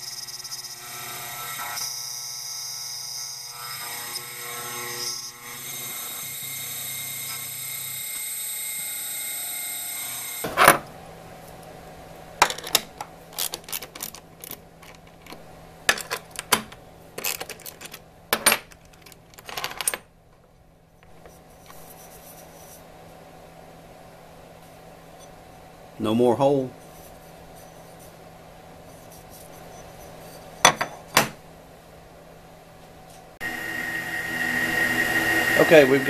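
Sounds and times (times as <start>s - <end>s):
router spindle whine: 0.0s - 10.4s, 33.4s - 36.0s.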